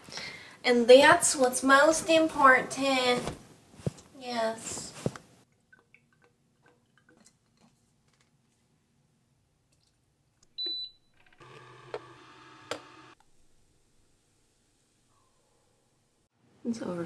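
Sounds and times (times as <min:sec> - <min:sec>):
milk frother motor humming: 0:11.4 - 0:13.2.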